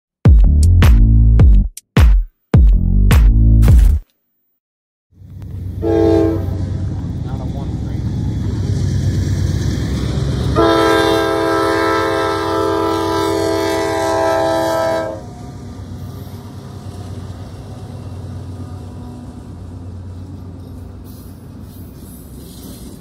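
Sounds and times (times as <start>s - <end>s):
diesel locomotive rumbling: 5.2s - 23.0s
train cars passing over crossing: 5.2s - 23.0s
train air horn blast: 5.8s - 6.8s, 10.5s - 15.3s.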